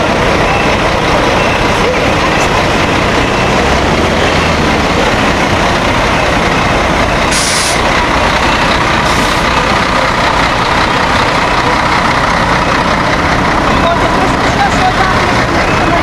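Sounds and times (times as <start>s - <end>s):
diesel coach engines idling: 0.0s - 16.0s
air brake hiss: 7.3s - 7.8s.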